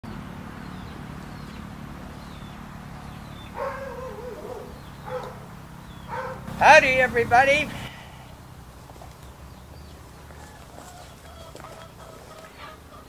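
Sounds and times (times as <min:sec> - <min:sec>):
animal calls: 0:02.4 - 0:08.4, 0:10.3 - 0:13.0.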